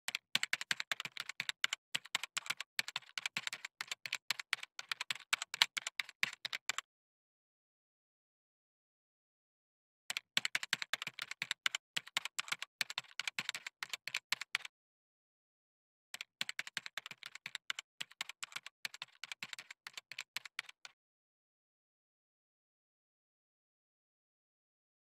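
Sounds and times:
rapid typing on keyboard: 0.1 - 6.8, 10.1 - 14.7, 16.2 - 21.0.

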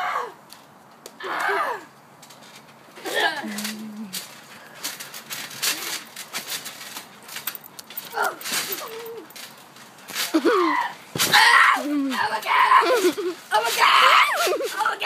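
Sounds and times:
children yelping and squealing: 10.3 - 15.0
thumps on trampoline mat: 11.1 - 11.5.

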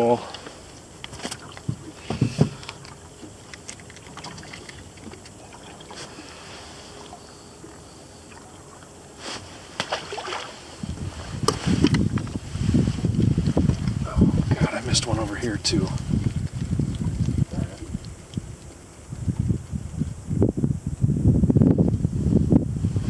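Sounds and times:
water lapping against hull: 0.0 - 20.5
low rumbling: 10.5 - 23.0.

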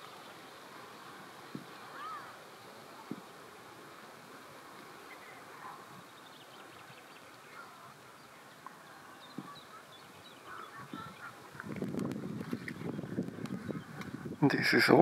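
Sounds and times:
faint outdoor background: 0.0 - 15.0.

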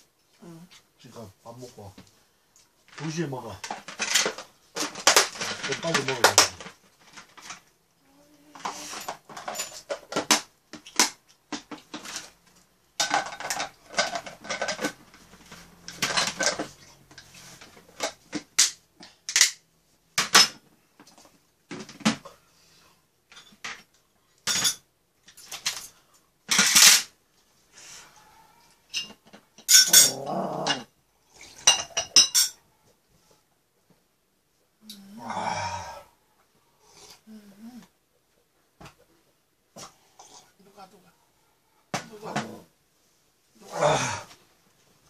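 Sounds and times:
dishes clattering on metal tray: 13.0 - 16.8, 28.9 - 30.9, 31.6 - 32.6.

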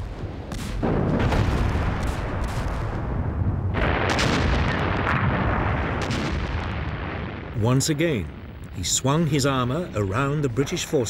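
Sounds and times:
artillery blasts: 0.0 - 8.6
low rumble of battle: 0.0 - 11.0.

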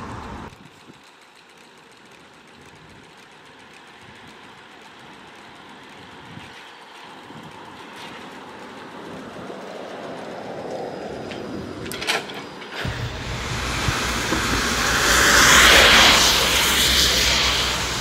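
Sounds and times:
trolleybus passing: 0.0 - 0.5, 4.7 - 18.0.

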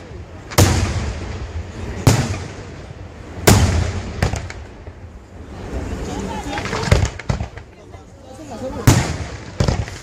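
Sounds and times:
small firework cracks: 3.5 - 5.0, 6.4 - 7.9, 8.8 - 10.0.

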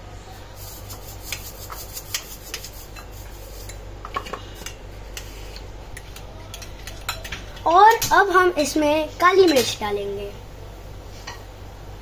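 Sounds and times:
fork beating eggs in bowl: 0.6 - 3.8.

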